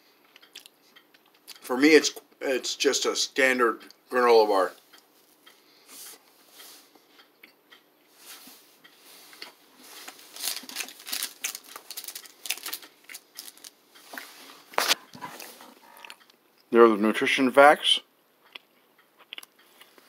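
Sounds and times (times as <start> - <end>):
plastic wrapper crinkling: 9.9 - 13.8.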